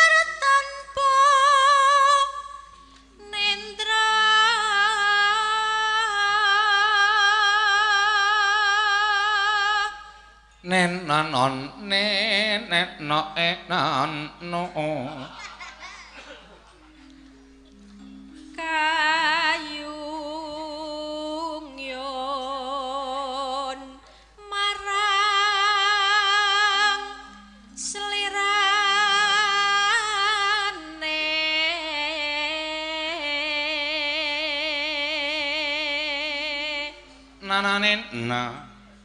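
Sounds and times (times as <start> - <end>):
woman singing with vibrato: 0.0 - 16.4, 17.8 - 39.0
low sustained accompaniment: 9.8 - 39.0
singer breathing: 24.0 - 24.4.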